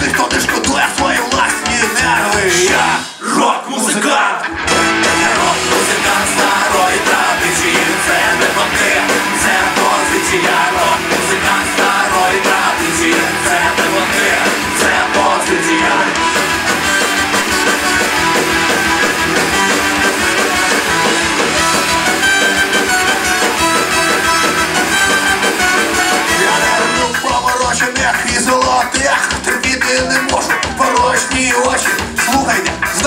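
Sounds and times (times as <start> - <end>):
drums: 0.0 - 33.0
electric guitar: 4.4 - 33.0
trombone playing: 12.3 - 27.1.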